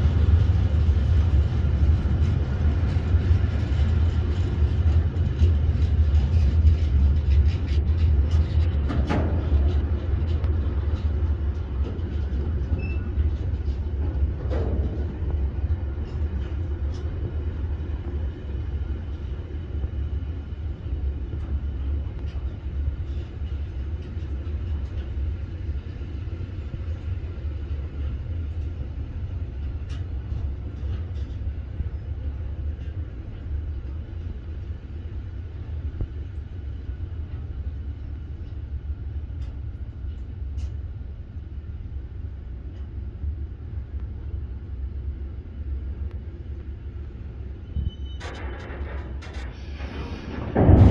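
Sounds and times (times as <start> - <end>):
freight train rolling past: 0.0 - 50.9
clicks and knocks of wagons: 48.2 - 50.9.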